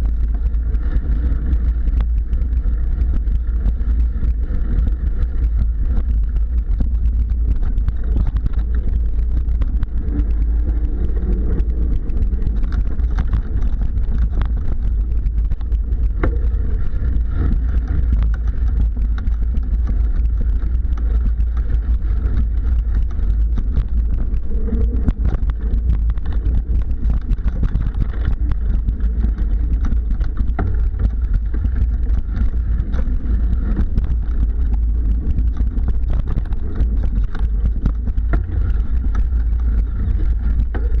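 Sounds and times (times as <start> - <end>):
bike tyres and frame rattling: 0.0 - 41.0
wind rumble on microphone: 0.0 - 41.0.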